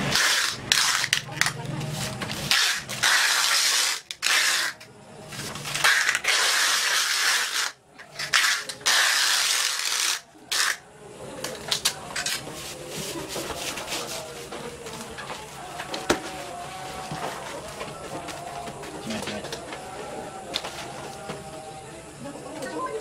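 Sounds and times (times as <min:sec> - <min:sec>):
packing tape pulled off roll: 0:00.0 - 0:10.8.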